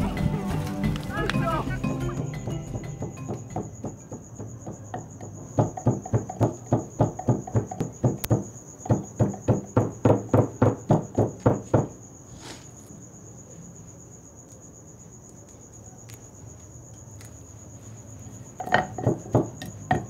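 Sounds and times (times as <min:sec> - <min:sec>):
crickets chirring: 0:00.0 - 0:20.0
fast loud knocks: 0:02.5 - 0:12.0, 0:18.8 - 0:20.0.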